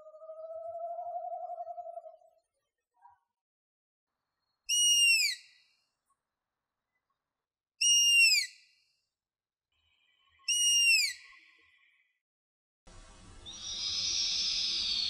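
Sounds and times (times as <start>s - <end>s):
owl whistling call: 0.0s - 2.3s, 4.7s - 5.5s, 7.8s - 8.5s, 10.5s - 11.3s, 13.5s - 15.0s.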